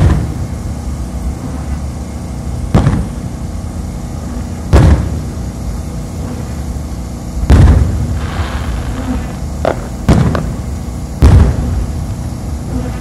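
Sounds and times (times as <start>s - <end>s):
fireworks booming: 0.0s - 13.0s.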